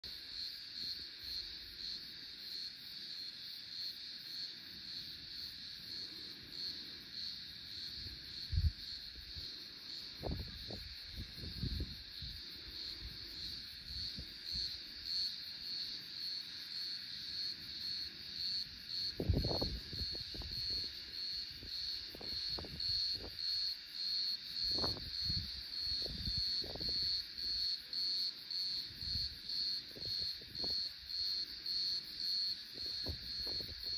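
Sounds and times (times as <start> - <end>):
insects pulsing chorus: 0.1 - 33.9
wind buffeting microphone: 7.9 - 14.8, 19.0 - 23.6, 24.6 - 27.4, 29.0 - 31.2, 32.8 - 33.9.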